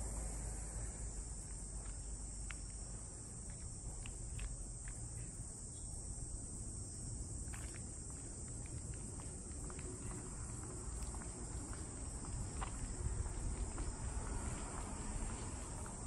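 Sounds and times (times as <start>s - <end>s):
insects droning: 0.0s - 16.0s
faint ticks: 1.4s - 5.3s.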